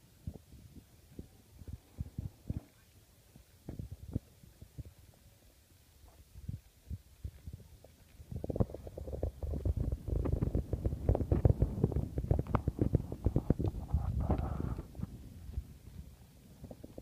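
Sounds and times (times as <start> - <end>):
wind buffeting microphone: 0.2 - 5.3, 6.0 - 17.0.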